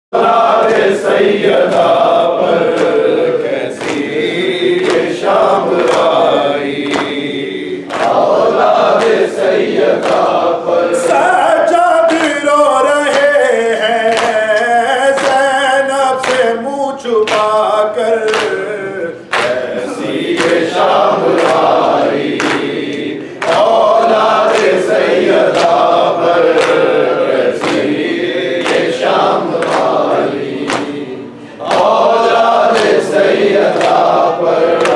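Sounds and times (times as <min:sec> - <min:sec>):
men chanting in unison: 0:00.2 - 0:34.9
hands slapping chests: 0:03.7 - 0:10.4, 0:18.3 - 0:18.6, 0:19.3 - 0:34.9.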